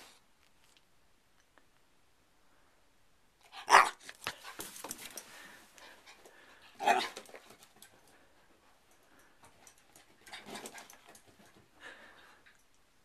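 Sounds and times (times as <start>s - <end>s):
puppy barking: 3.6s - 4.0s, 6.8s - 7.2s.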